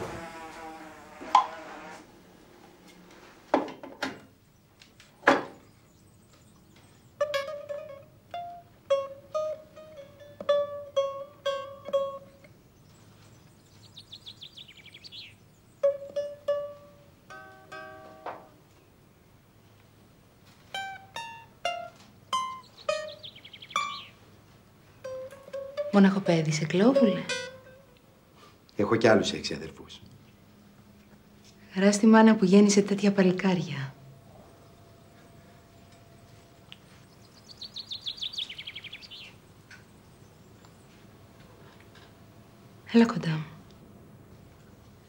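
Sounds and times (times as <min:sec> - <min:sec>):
plucked lute melody: 0:07.2 - 0:12.6, 0:15.8 - 0:18.6, 0:20.4 - 0:24.1, 0:24.8 - 0:28.0.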